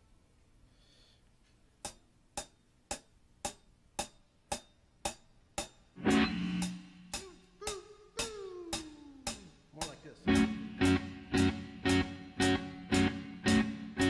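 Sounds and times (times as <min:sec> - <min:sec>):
drumstick count-in clicks: 0:01.8 - 0:05.7
rock band chord: 0:06.0 - 0:07.2, 0:10.3 - 0:14.0.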